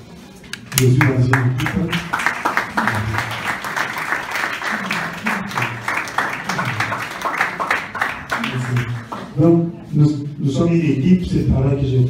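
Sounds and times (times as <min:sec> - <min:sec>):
murmur of voices: 0:00.0 - 0:12.0
audience applauding: 0:00.7 - 0:09.4.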